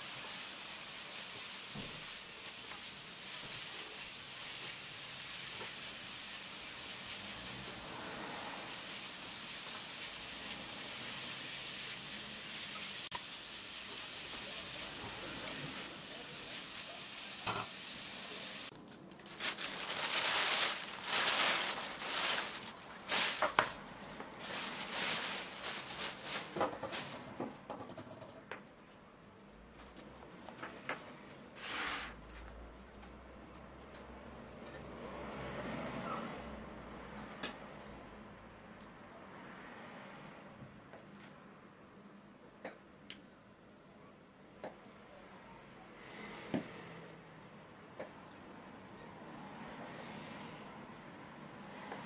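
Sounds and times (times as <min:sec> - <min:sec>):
leeks sizzling in oil: 0:00.0 - 0:18.7, 0:24.4 - 0:26.6.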